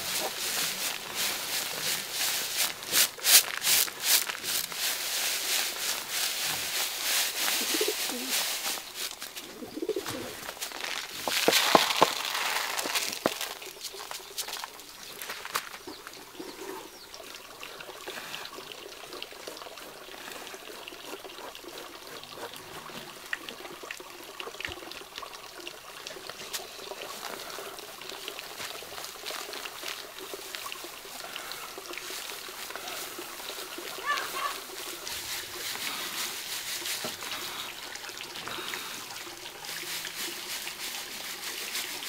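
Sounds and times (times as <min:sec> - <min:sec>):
rice grains pouring and rustling: 0:00.0 - 0:15.8, 0:32.0 - 0:38.1, 0:39.3 - 0:42.0.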